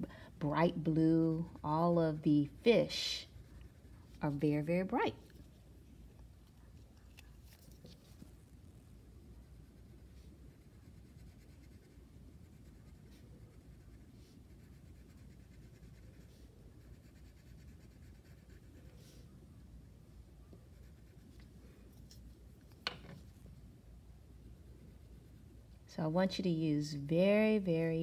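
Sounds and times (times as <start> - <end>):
room hum: 0.0 - 28.0
crayon scratching on paper: 9.4 - 19.3, 20.6 - 21.4.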